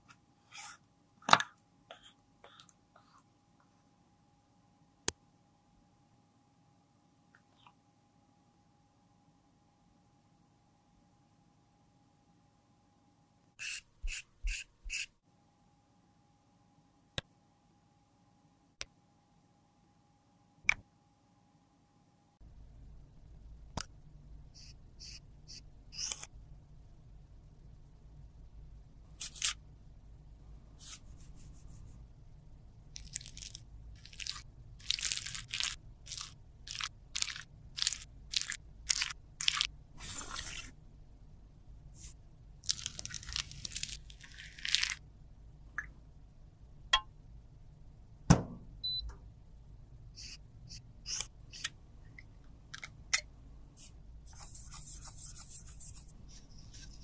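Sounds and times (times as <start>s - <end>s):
paper crunching and crinkling: 33.0s - 40.7s, 42.6s - 45.0s
sharp knock: 48.3s - 48.7s.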